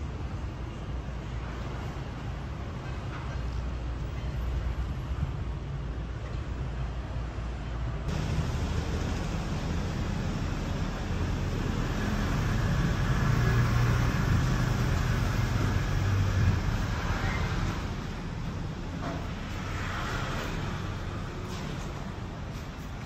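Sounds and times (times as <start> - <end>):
city traffic rumble: 0.0 - 23.0
vehicle engine passing: 8.1 - 21.8.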